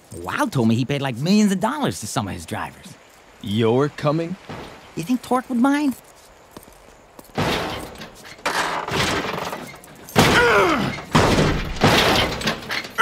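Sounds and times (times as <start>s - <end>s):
heavy thuds and crashes: 4.5s - 4.8s, 7.3s - 13.0s
man grunting: 10.3s - 11.0s.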